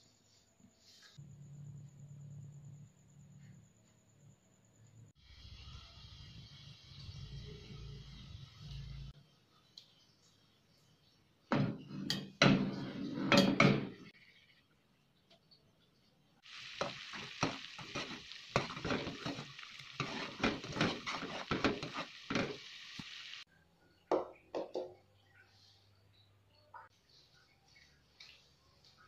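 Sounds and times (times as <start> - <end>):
water boiling: 5.2 - 9.2, 16.4 - 23.5
ladle scraping a pot: 16.8 - 22.7.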